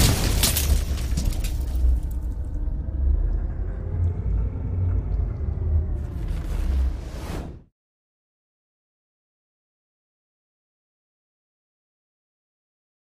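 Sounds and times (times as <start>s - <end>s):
deep sustained rumble: 0.6s - 7.7s.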